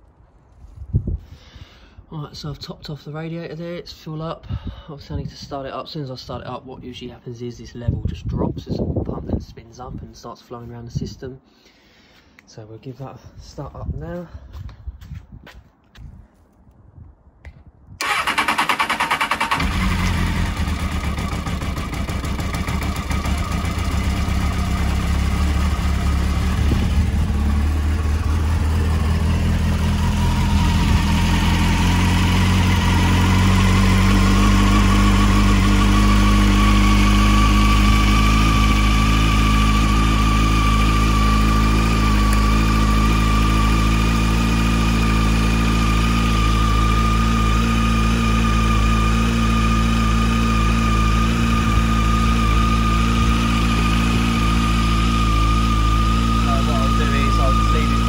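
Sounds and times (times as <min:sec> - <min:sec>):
motorcycle engine idling: 0:18.0 - 0:58.0.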